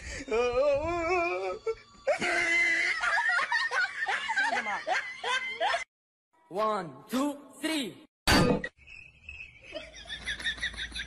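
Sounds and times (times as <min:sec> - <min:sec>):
people laughing: 0:02.1 - 0:05.9, 0:09.6 - 0:11.0.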